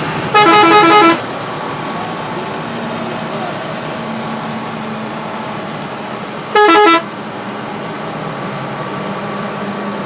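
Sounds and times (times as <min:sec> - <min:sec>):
bus engine and road noise: 0:00.0 - 0:10.0
multi-tone bus horn blast: 0:00.3 - 0:01.3, 0:06.5 - 0:07.1.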